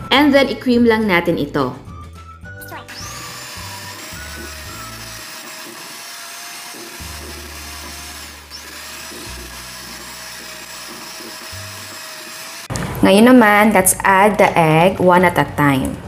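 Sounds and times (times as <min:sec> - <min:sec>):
background music: 0:00.0 - 0:05.5
electric hand mixer whine: 0:02.7 - 0:12.7.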